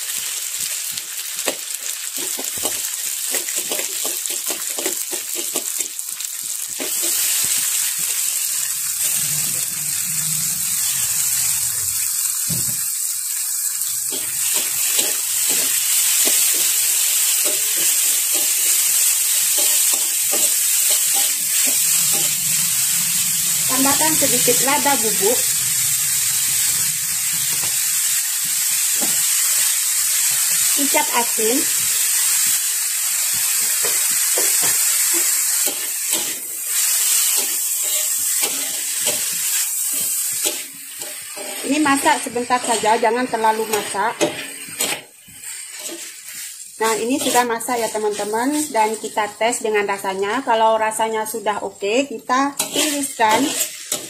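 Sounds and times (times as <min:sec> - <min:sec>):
vegetables sizzling in a wok: 0:00.0 - 0:54.0
metal spatula scraping wok: 0:06.8 - 0:12.1, 0:13.8 - 0:28.0, 0:33.8 - 0:49.1, 0:52.6 - 0:54.0.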